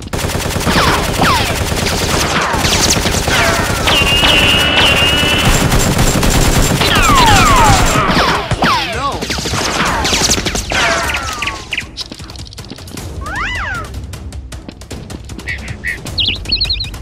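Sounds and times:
automatic gunfire: 0:00.0 - 0:11.6
bullet ricochet whines: 0:02.8 - 0:05.6.

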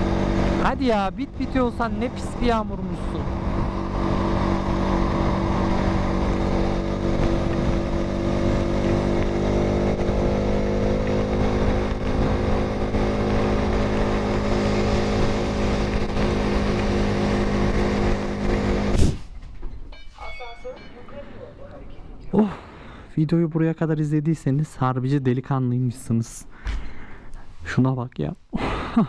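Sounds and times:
motorcycle engine running: 0:00.0 - 0:19.0
wind noise: 0:00.0 - 0:19.2
road noise: 0:00.0 - 0:28.0.

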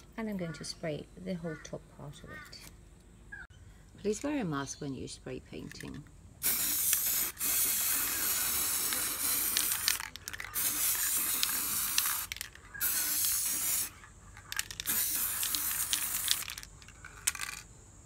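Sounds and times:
aerosol spray can hissing: 0:06.4 - 0:17.6.

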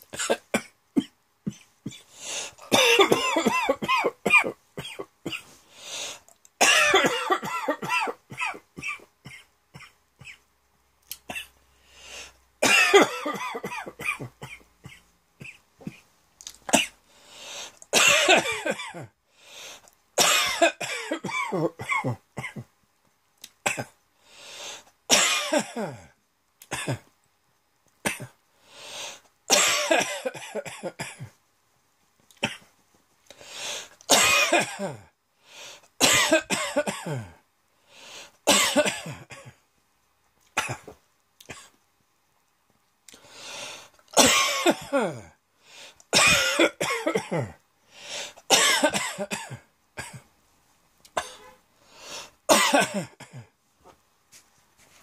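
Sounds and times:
person coughing hard: 0:00.2 - 0:05.6, 0:06.6 - 0:10.4, 0:12.6 - 0:16.0, 0:18.0 - 0:19.1, 0:20.2 - 0:22.7, 0:25.1 - 0:26.1, 0:26.7 - 0:27.1, 0:29.5 - 0:31.4, 0:33.8 - 0:35.1, 0:36.0 - 0:37.4, 0:38.5 - 0:39.6, 0:40.6 - 0:41.8, 0:44.2 - 0:45.4, 0:46.1 - 0:47.6, 0:48.5 - 0:50.3, 0:51.2 - 0:51.6, 0:52.5 - 0:53.5.

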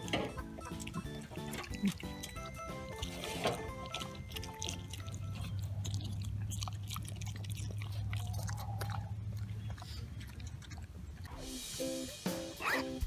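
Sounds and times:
background music: 0:00.0 - 0:05.6, 0:11.3 - 0:13.0
low steady hum: 0:00.0 - 0:11.4
pig munching grass: 0:00.0 - 0:13.0.

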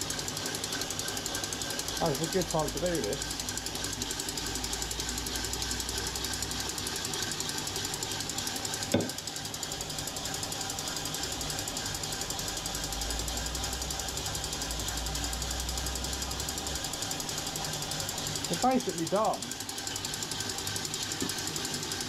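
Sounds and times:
beater whisking in a bowl: 0:00.0 - 0:22.0.

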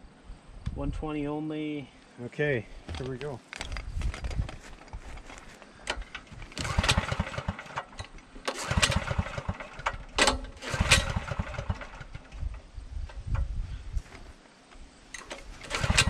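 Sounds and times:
generator recoil pull-start: 0:02.9 - 0:13.5, 0:15.1 - 0:16.0.

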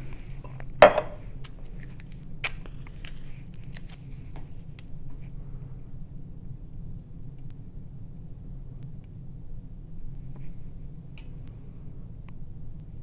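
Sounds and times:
low steady hum: 0:00.0 - 0:13.0
matches and paper rustling: 0:01.5 - 0:04.8.

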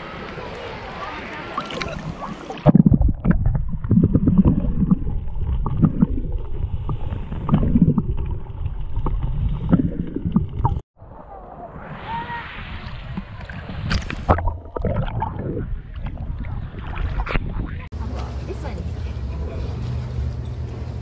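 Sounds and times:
sea water lapping and splashing: 0:12.7 - 0:21.0.

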